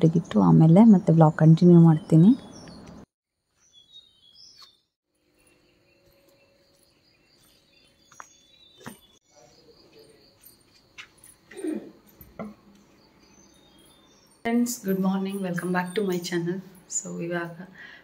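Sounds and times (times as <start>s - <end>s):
birds chirping: 0.0s - 17.6s
insects chirping: 3.5s - 17.3s.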